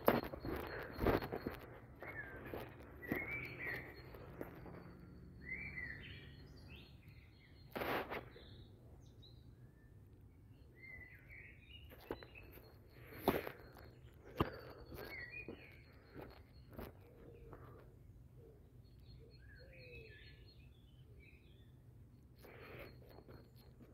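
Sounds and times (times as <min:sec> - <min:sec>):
footstep on path: 0:00.0 - 0:05.0, 0:12.0 - 0:17.8
small birds singing: 0:00.0 - 0:23.9.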